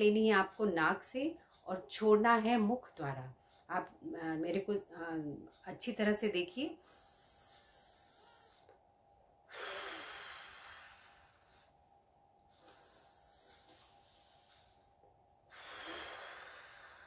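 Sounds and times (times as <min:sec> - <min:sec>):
woman breathing deeply: 0:06.8 - 0:08.8, 0:09.4 - 0:17.0.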